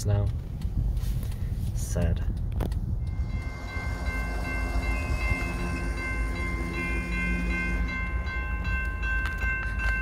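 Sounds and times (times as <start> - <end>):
crossing warning bells: 0.0 - 10.0
train rumble: 0.0 - 10.0
distant train horn: 3.1 - 8.8.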